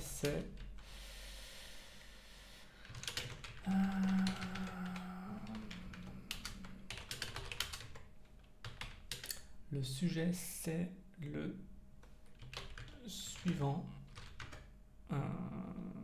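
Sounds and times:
keyboard typing: 2.8 - 9.5, 12.3 - 14.7
low hum: 3.5 - 7.5.

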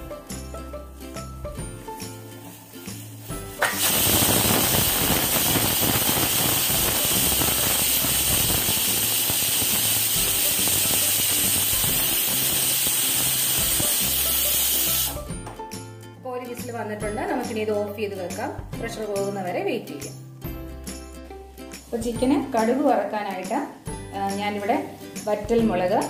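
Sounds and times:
pressure cooker steam hissing: 3.6 - 15.3.

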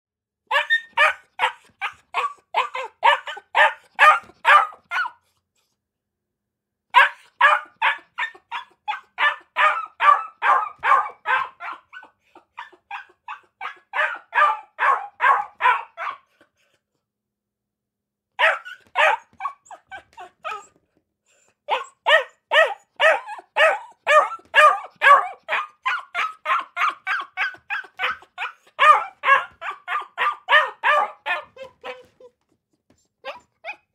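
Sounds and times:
dog barking: 0.5 - 5.2, 6.9 - 16.4, 18.4 - 20.7, 21.7 - 32.1.

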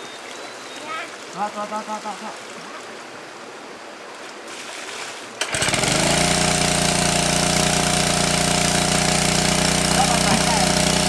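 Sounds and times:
running water: 0.0 - 11.0
water pump engine running: 5.4 - 11.0.

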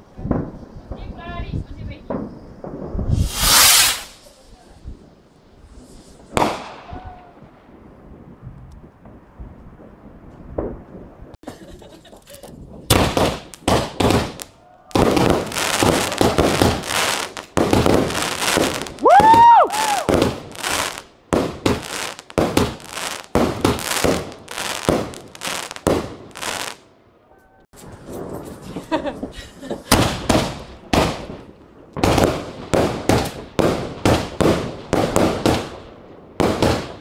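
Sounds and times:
fireworks bursting and crackling: 0.0 - 27.0, 27.7 - 37.0
firework whistle: 2.2 - 4.4, 18.6 - 21.0.

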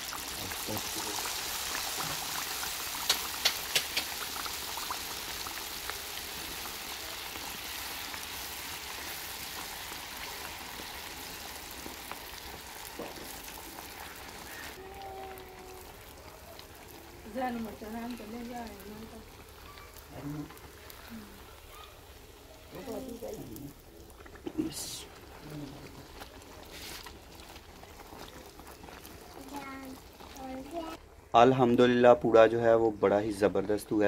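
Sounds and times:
hot oil sizzling and bubbling: 0.0 - 34.0
sharp pops in frying oil: 1.7 - 6.0, 11.9 - 14.8.

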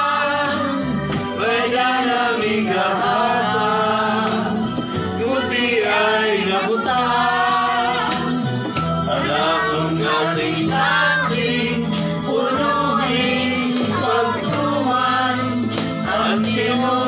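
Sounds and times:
backing music over loudspeaker: 0.0 - 17.0
group of people singing: 0.0 - 17.0.

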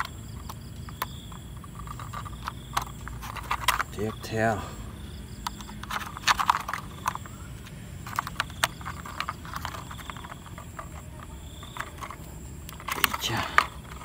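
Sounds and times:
small plastic clicks and taps: 5.4 - 14.0.

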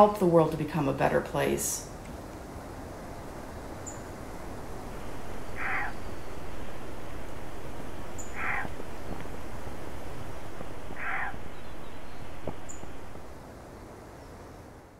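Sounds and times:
outdoor background hiss: 0.0 - 14.9
harsh animal call: 5.3 - 6.2, 8.1 - 8.9, 10.9 - 11.6.

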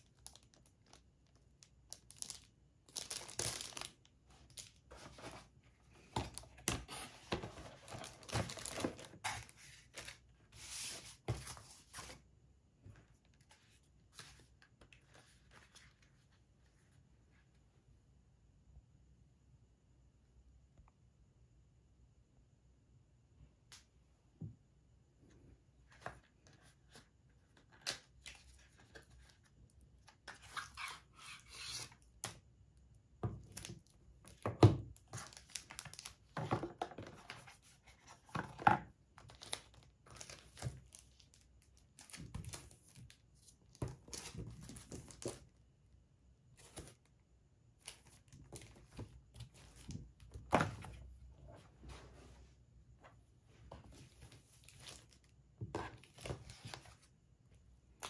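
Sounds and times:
plastic packaging crinkling: 0.0 - 4.8, 7.8 - 9.6.

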